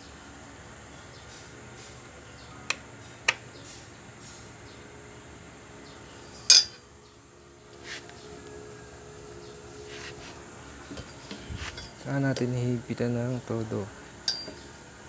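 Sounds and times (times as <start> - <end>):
steady low hiss: 0.0 - 15.0
metallic clinks of tools: 6.3 - 6.8, 14.2 - 14.7.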